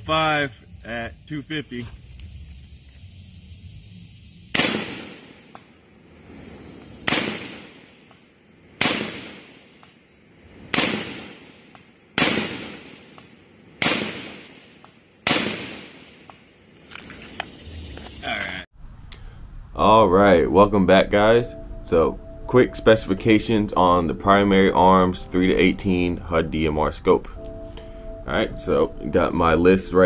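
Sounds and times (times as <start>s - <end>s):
rifle shots with echo: 4.6s - 5.5s, 7.0s - 8.1s, 8.8s - 9.8s, 10.7s - 16.3s.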